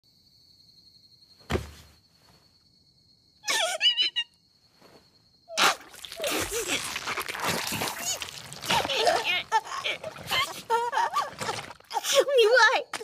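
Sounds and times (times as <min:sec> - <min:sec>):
dull thud: 0:01.4 - 0:01.9.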